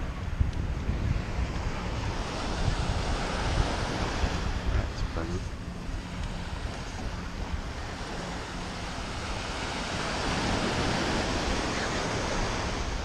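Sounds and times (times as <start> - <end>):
wind rumbling on microphone: 0.0 - 13.0
surf breaking on sand: 0.9 - 13.0.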